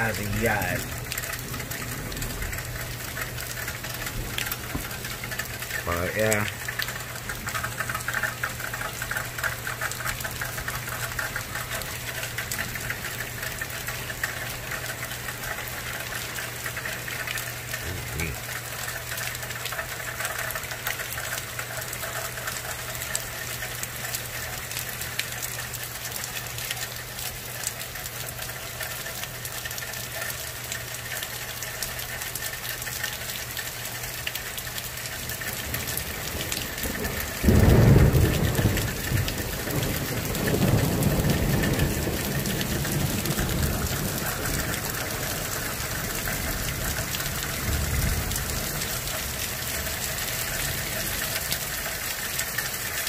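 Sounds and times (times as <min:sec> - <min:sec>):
heavy rain: 0:00.0 - 0:53.0
thunder rumbling: 0:35.7 - 0:51.7.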